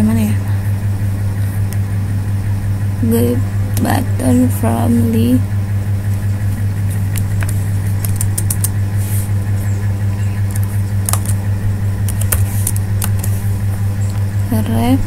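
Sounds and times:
low electrical hum: 0:00.0 - 0:15.0
sharp computer input clicks: 0:07.2 - 0:08.7, 0:10.4 - 0:11.4, 0:12.1 - 0:13.3.

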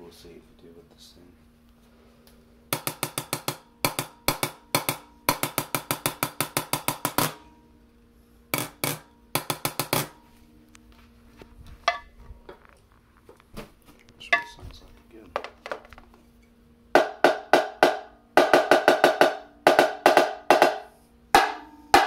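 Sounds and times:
drumstick striking snare drum: 0:02.7 - 0:07.4, 0:08.6 - 0:10.2, 0:17.0 - 0:22.0.

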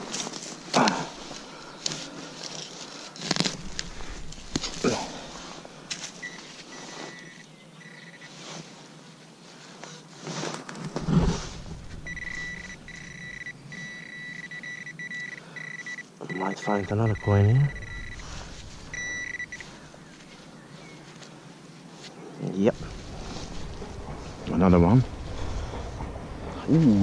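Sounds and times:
metal detector beeping: 0:06.0 - 0:08.4, 0:12.0 - 0:19.8.

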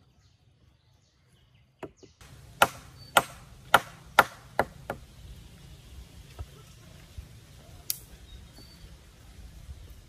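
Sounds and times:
hammer striking a nail: 0:02.6 - 0:05.0.

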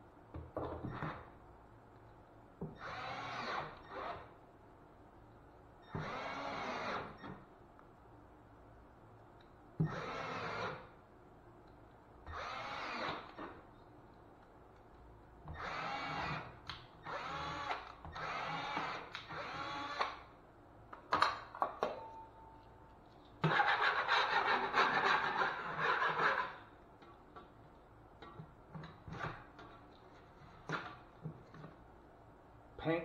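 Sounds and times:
cordless drill whining: 0:02.8 - 0:04.2, 0:05.9 - 0:07.2, 0:09.9 - 0:10.8, 0:12.3 - 0:13.3, 0:15.5 - 0:20.2.

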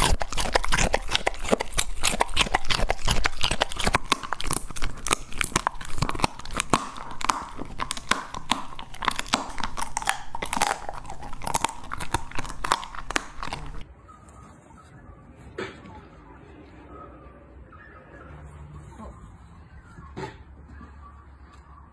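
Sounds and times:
dog chewing raw meat: 0:00.0 - 0:13.8.

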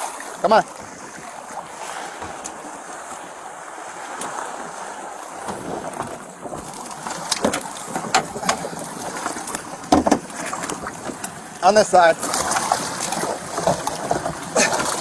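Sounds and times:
waves on open water: 0:00.0 - 0:15.0
wind: 0:00.0 - 0:15.0
wind buffeting microphone: 0:00.7 - 0:11.5
sharp knocks: 0:09.9 - 0:10.3.

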